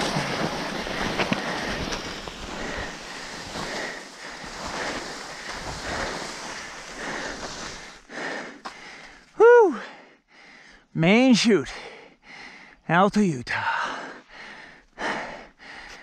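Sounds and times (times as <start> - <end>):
person whooping: 9.4 - 9.9.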